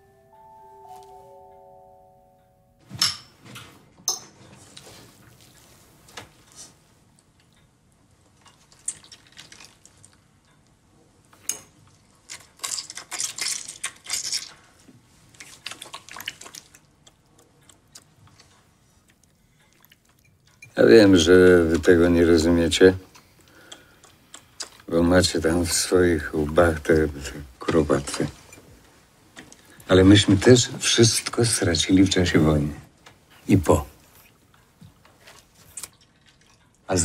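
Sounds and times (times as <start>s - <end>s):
liquid sounds: 8.2s - 10.5s, 11.7s - 20.7s, 34.0s - 37.0s.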